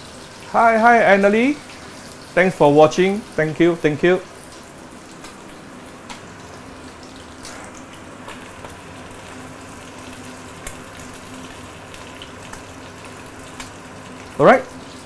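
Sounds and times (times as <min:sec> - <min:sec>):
fish sizzling in oil: 0:00.0 - 0:15.0.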